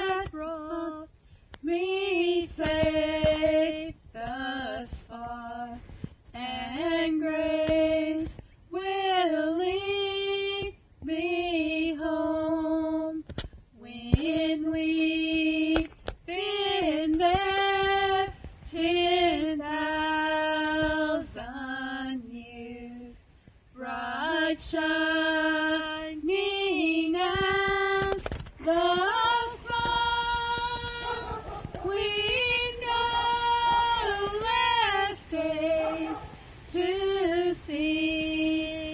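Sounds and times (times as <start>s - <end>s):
woman singing a hymn solo: 0.0s - 13.2s, 13.8s - 23.2s, 23.8s - 38.9s.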